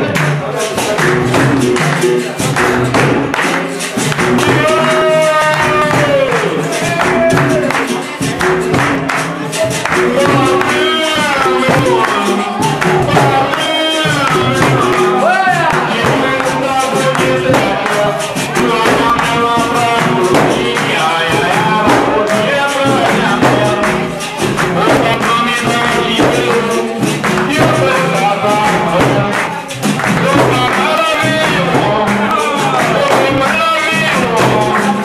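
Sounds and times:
group singing: 0:00.0 - 0:35.0
hand drum: 0:00.0 - 0:35.0.

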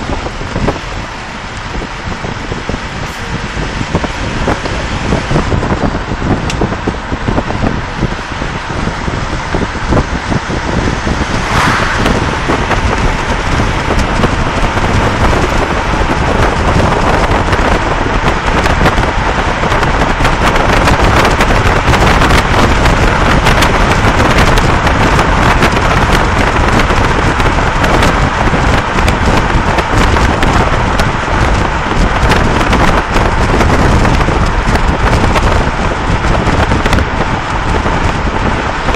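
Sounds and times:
vehicle road noise: 0:00.0 - 0:38.9
wind on microphone: 0:00.0 - 0:38.9.

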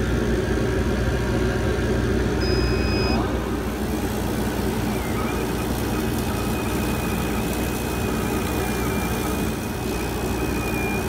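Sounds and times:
laser cutter humming: 0:00.0 - 0:11.0
thin high whine: 0:02.4 - 0:11.0.

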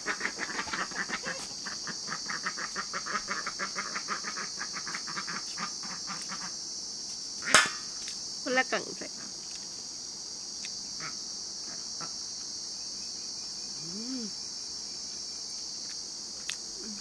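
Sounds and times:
crickets chirping: 0:00.0 - 0:17.0
closed-mouth hum: 0:13.8 - 0:14.4.

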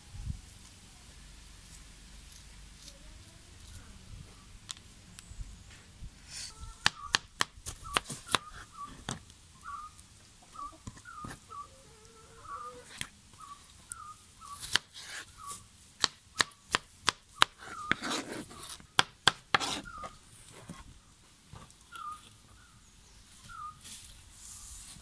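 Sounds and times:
knife scraping rub: 0:14.6 - 0:15.6, 0:17.6 - 0:18.8, 0:19.5 - 0:20.8.

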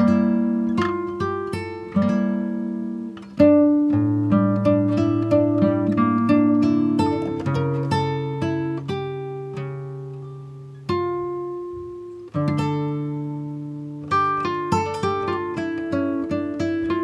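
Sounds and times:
plucked acoustic guitar: 0:00.0 - 0:17.0.

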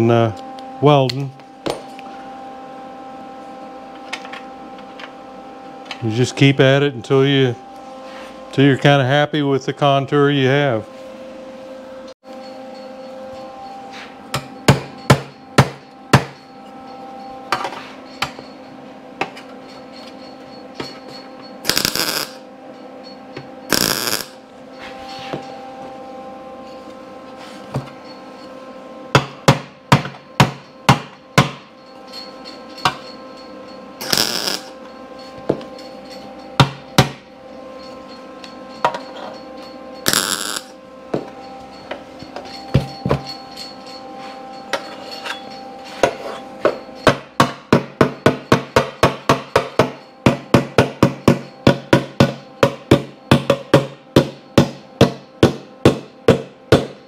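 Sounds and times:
hammer striking ringing sheet steel: 0:21.6 - 0:22.4, 0:23.7 - 0:25.4, 0:29.2 - 0:37.9, 0:38.6 - 0:57.0.

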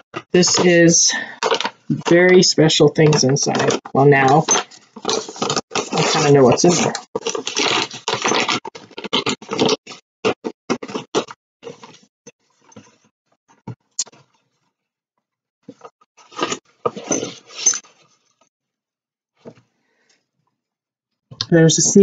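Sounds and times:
paper rustling: 0:01.4 - 0:02.4, 0:03.0 - 0:12.0
paper envelope tearing: 0:04.6 - 0:11.8.

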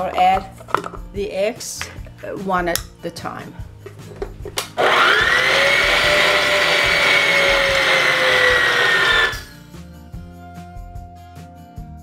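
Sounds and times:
stand mixer motor whine: 0:04.8 - 0:09.6.

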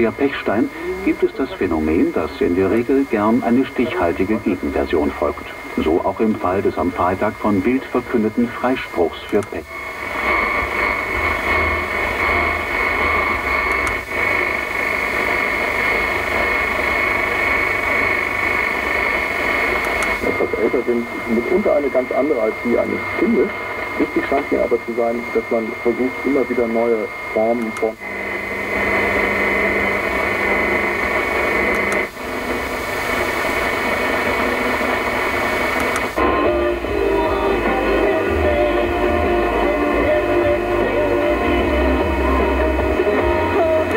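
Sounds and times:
radio static hiss: 0:00.0 - 0:43.9
high radio whistle: 0:18.6 - 0:43.9.

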